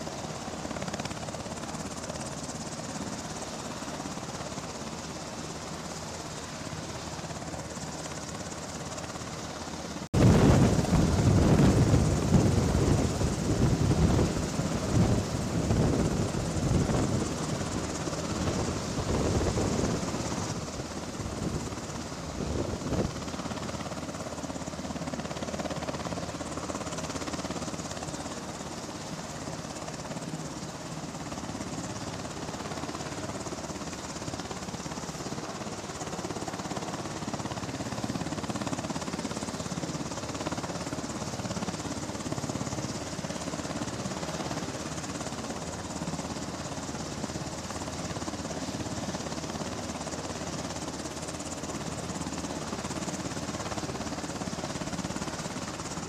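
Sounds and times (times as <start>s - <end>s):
helicopter turbine and rotor noise: 0.0s - 56.0s
wind buffeting microphone: 10.2s - 17.7s, 18.3s - 23.6s.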